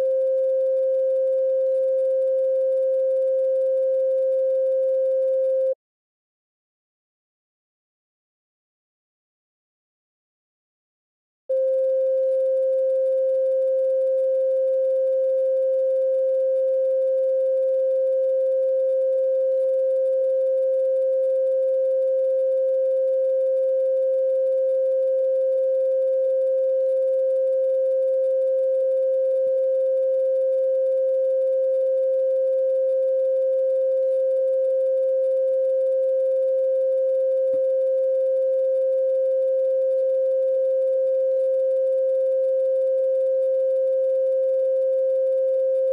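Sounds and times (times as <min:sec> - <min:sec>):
steady pure tone: 0:00.0 - 0:05.8, 0:11.5 - 0:45.9.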